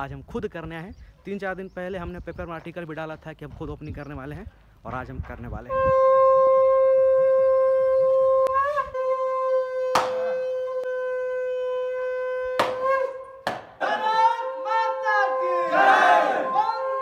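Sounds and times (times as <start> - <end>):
conch shell blown: 5.7 - 13.4, 14.4 - 15.8, 16.4 - 17.0
men shouting: 13.8 - 17.0.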